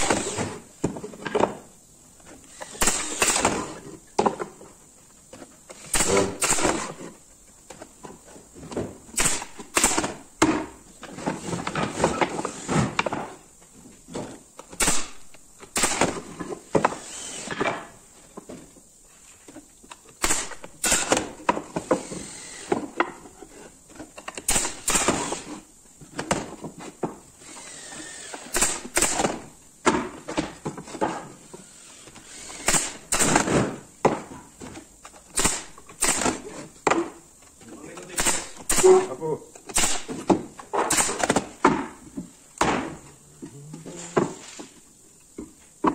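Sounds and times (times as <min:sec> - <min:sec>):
brad nailer firing: 0:00.0 - 0:00.6, 0:02.6 - 0:03.8, 0:05.7 - 0:07.1, 0:09.1 - 0:10.7, 0:14.7 - 0:17.9, 0:20.2 - 0:22.9, 0:24.3 - 0:25.6, 0:27.5 - 0:30.5, 0:31.9 - 0:34.2, 0:35.3 - 0:37.1, 0:38.1 - 0:39.1, 0:39.7 - 0:41.9, 0:42.6 - 0:43.0
wooden pieces knocking and scraping: 0:00.0 - 0:38.8, 0:39.5 - 0:45.9.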